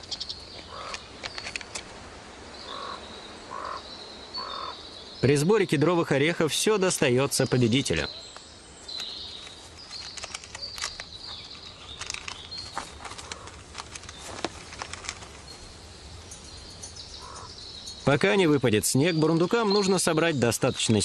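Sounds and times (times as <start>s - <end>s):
chipmunk gnawing pine cone: 9.0s - 15.4s.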